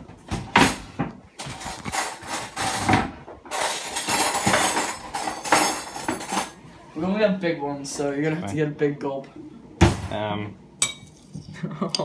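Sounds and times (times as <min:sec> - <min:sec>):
cutlery clattering in a drawer: 0:01.4 - 0:06.6.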